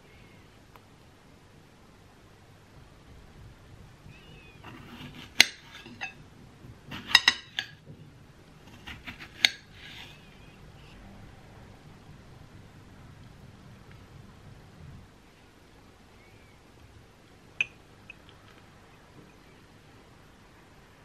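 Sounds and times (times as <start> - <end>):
knife slicing strawberries: 4.6 - 6.2, 6.8 - 7.8, 8.6 - 10.4.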